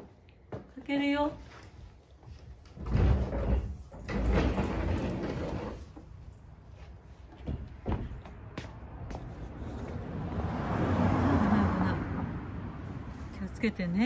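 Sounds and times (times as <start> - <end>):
sliding door rumbling along track: 2.8 - 5.8.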